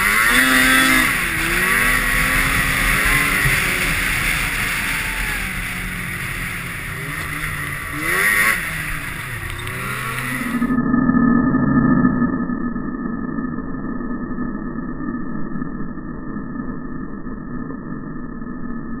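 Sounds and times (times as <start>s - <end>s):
snowmobile engine revving: 0.0s - 10.8s
steady rushing noise: 0.0s - 13.2s.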